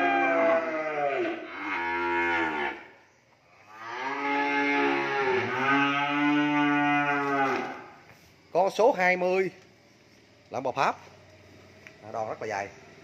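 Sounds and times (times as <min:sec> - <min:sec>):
cattle mooing: 0:00.0 - 0:02.9, 0:03.7 - 0:07.9.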